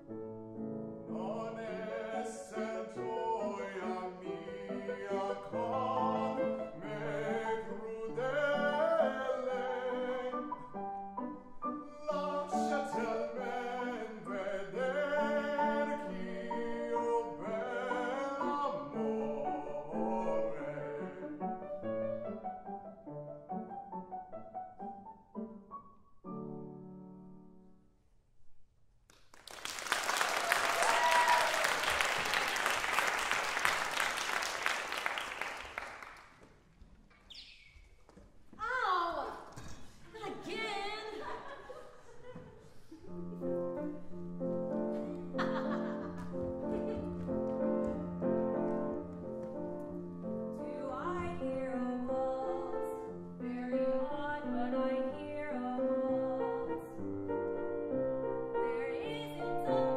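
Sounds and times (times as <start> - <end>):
piano accompaniment: 0.0 - 27.8, 43.1 - 59.9
man singing operatically: 1.0 - 10.7, 11.8 - 21.6
audience applauding: 29.1 - 36.6
person cheering: 30.3 - 32.1.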